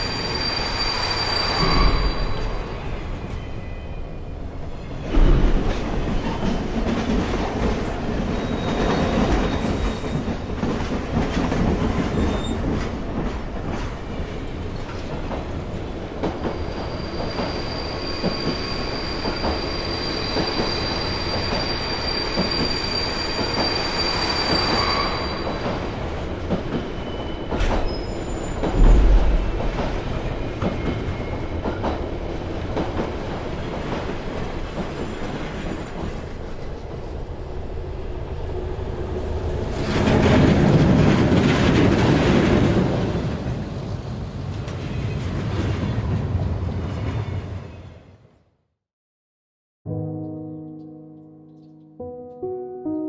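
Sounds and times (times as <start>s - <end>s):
high wheel squeal: 0.0s - 4.0s, 16.6s - 25.8s, 27.0s - 28.8s
train rolling rumble: 4.4s - 47.6s
loud low thumps: 28.8s - 30.0s.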